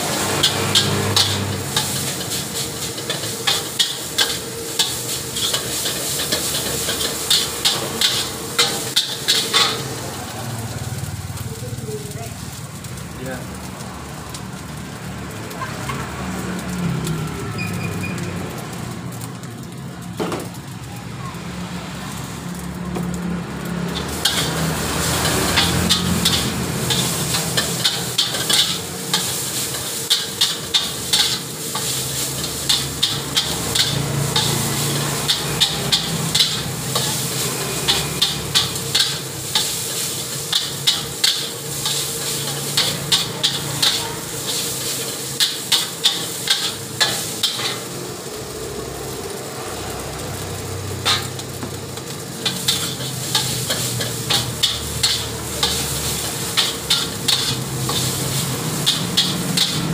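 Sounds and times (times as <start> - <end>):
metal spatula scraping wok: 0.0 - 10.6, 23.9 - 48.4, 49.3 - 59.9
frying sizzle: 0.0 - 59.9.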